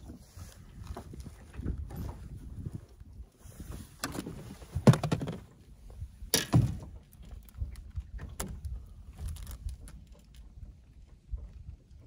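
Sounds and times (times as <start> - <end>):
knocks and thuds on boat deck: 4.0 - 5.5, 6.3 - 7.0.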